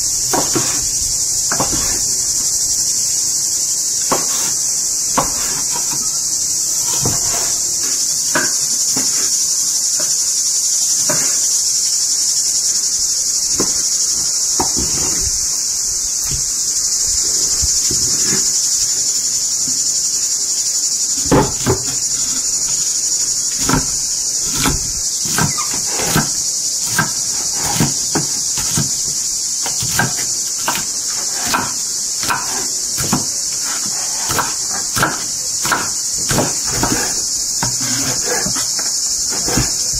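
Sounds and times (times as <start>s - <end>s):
high-pitched insect chorus: 0.0s - 39.9s
knife chopping on wooden board: 0.3s - 0.9s, 1.5s - 2.0s, 4.1s - 4.6s, 5.2s - 6.1s, 21.2s - 22.4s, 23.6s - 39.9s.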